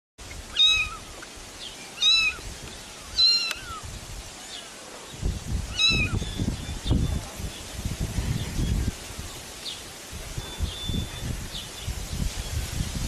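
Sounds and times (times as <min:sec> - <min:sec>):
kitten meowing: 0:00.5 - 0:01.1, 0:02.0 - 0:02.4, 0:03.1 - 0:03.8, 0:05.7 - 0:06.2.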